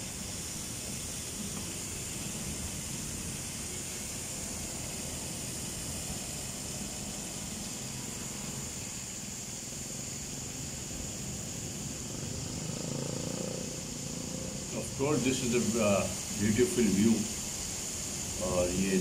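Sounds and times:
torrential rain pouring: 0.0s - 9.5s, 13.8s - 19.0s.

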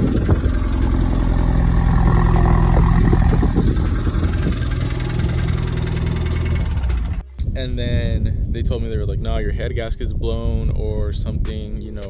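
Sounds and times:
car engine idling: 0.0s - 7.4s.

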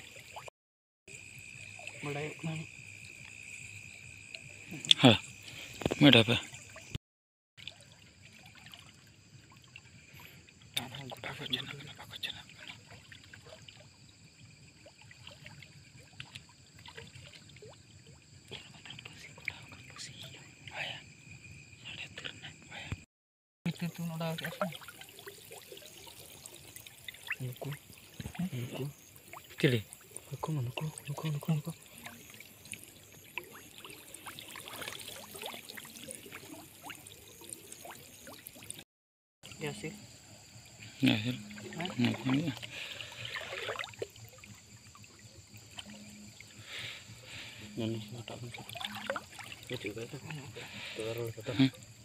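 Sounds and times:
faint water dripping and trickling: 0.0s - 0.5s, 1.1s - 7.0s, 7.6s - 22.9s, 23.7s - 38.8s, 39.4s - 52.0s
water drops plinking: 23.7s - 38.8s, 41.0s - 42.7s, 47.9s - 50.6s.

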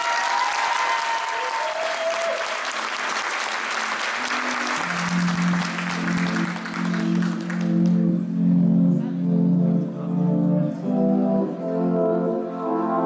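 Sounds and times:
audience applauding: 0.0s - 8.2s
music with low held notes: 4.8s - 13.0s.

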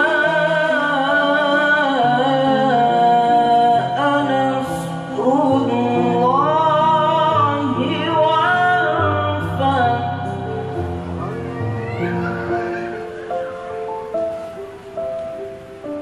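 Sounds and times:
man chanting melodic recitation: 11.0s - 13.7s.

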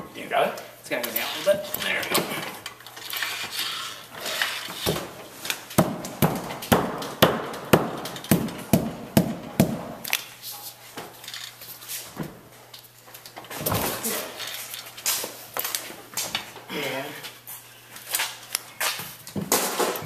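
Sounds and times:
sharp knocks: 5.8s - 10.0s.

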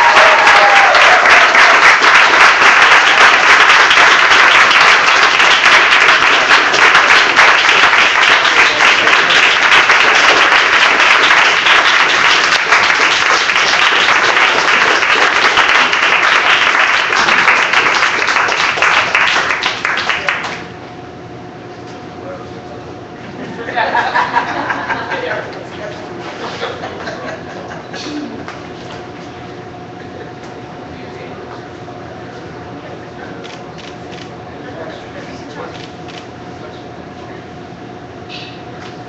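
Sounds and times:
crowd applauding: 0.0s - 20.7s.

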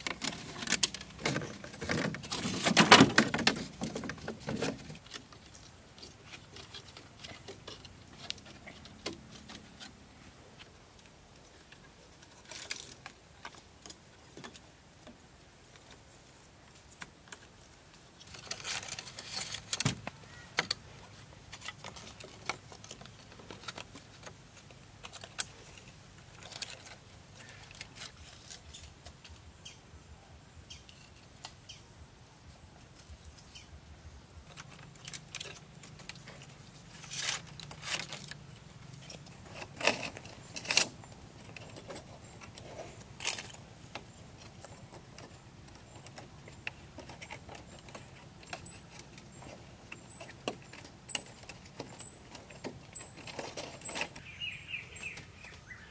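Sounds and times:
bamboo slats clicking and rustling: 0.0s - 29.6s, 34.4s - 55.9s.

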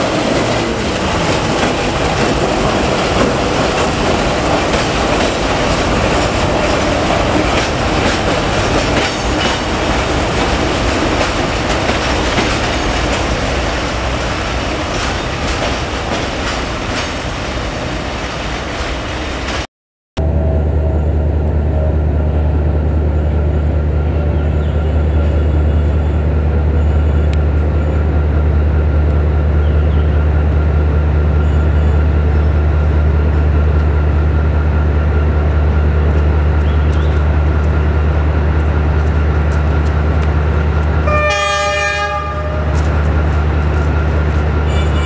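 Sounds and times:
locomotive engine droning: 0.0s - 18.0s, 20.2s - 45.0s
train horn blast: 41.0s - 42.9s, 44.6s - 45.0s.

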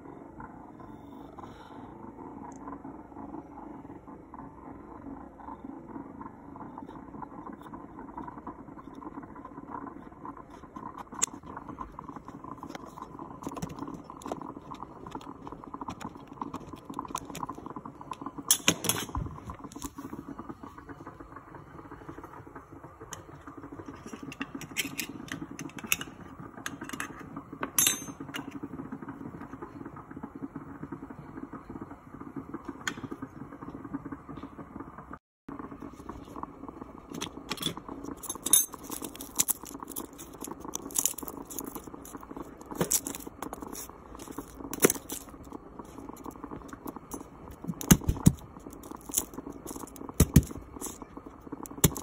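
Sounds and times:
steady low hum: 0.0s - 52.0s
can opener cutting tin: 37.2s - 45.4s.

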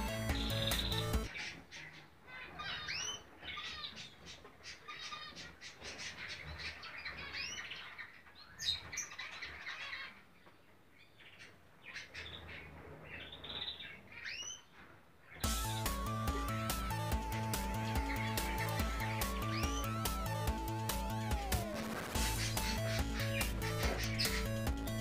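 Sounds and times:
finches chirping: 0.0s - 10.2s, 15.3s - 25.0s.

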